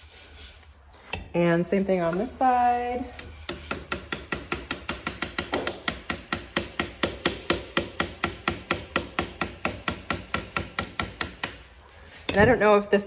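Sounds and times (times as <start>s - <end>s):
hammer striking metal punch: 3.2s - 11.6s.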